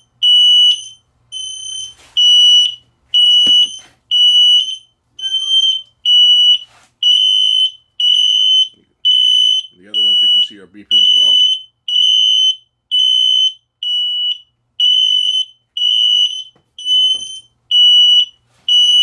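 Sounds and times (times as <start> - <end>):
smoke alarm beeping: 0.0 - 19.0
knock: 3.4 - 3.7.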